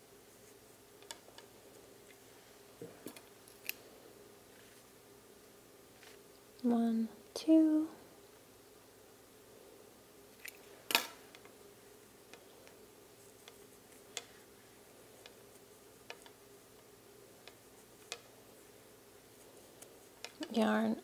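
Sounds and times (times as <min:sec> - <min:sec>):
faint steady hum: 0:00.0 - 0:21.0
wooden knitting needles clicking: 0:16.0 - 0:16.4, 0:17.4 - 0:18.3, 0:19.8 - 0:20.6.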